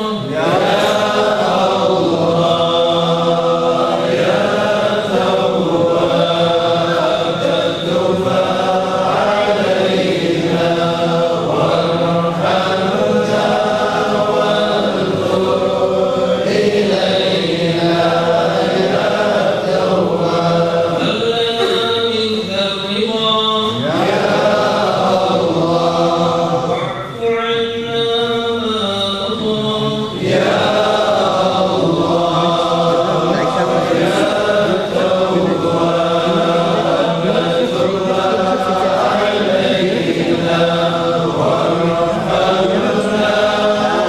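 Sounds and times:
men chanting together: 0:00.0 - 0:26.9, 0:27.6 - 0:44.0.

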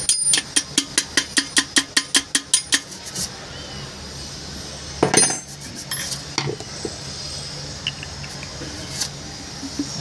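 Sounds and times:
metal tool clinking on metal housing: 0:00.0 - 0:02.8, 0:05.0 - 0:06.5, 0:07.8 - 0:08.4.

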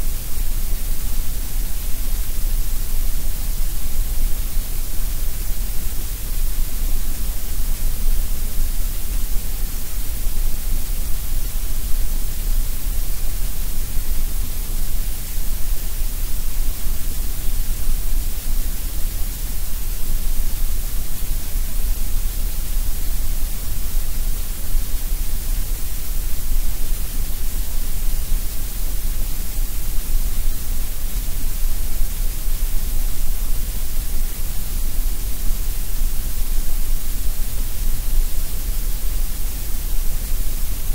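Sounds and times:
grey noise hiss with deep rumble: 0:00.0 - 0:40.9.

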